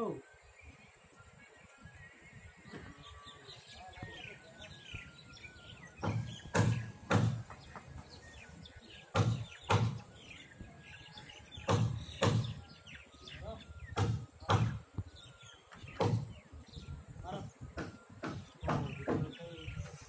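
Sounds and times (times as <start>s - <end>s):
birds chirping: 0.0s - 20.0s
loud sharp knocks: 6.0s - 7.8s, 9.1s - 10.0s, 11.6s - 12.6s, 13.9s - 14.8s, 16.0s - 16.3s, 17.8s - 19.3s.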